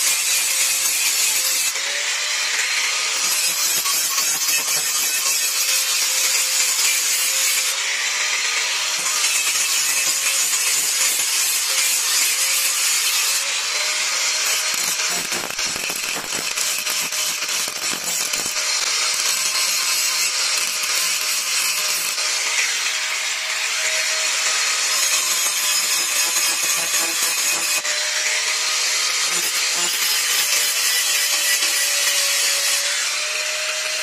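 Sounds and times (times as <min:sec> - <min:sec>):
angle grinder grinding steel: 0:00.0 - 0:34.0.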